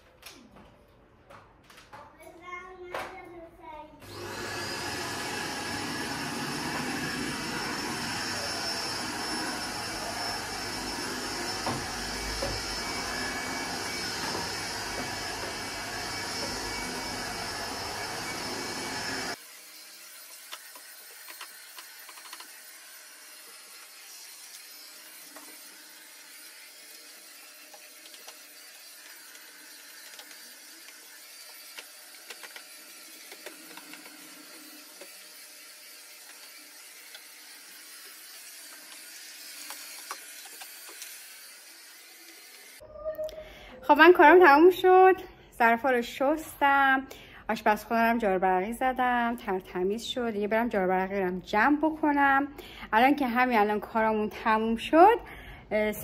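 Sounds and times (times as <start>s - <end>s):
vacuum cleaner running: 4.0s - 42.8s.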